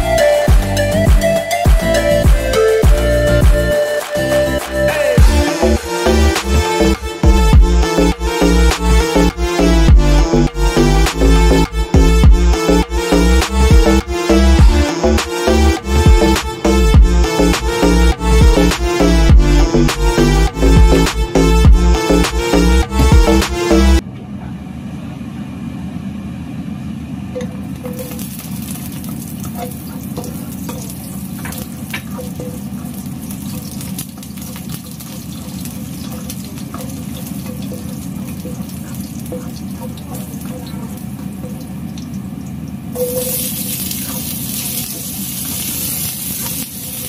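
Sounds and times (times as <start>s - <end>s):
hot oil sizzling with small pops: 27.7s - 47.0s
vegetables sizzling in oil: 43.0s - 47.0s.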